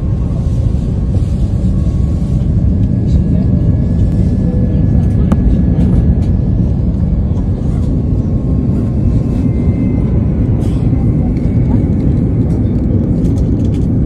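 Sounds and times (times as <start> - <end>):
faint whining tones: 0.0 - 13.9
airliner engine rumble: 0.0 - 14.0.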